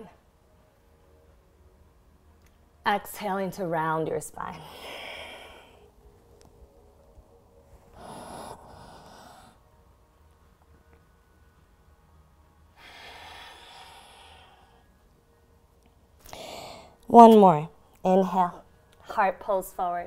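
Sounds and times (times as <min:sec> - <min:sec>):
woman breathing deeply: 0:04.6 - 0:06.0, 0:07.6 - 0:09.8, 0:12.7 - 0:15.1, 0:16.2 - 0:17.0.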